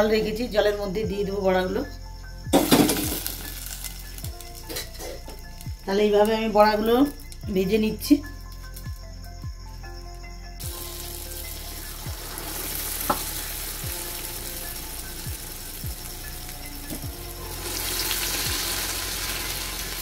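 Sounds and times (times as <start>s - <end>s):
fritters deep-frying in hot oil: 2.6s - 4.8s, 10.6s - 20.0s.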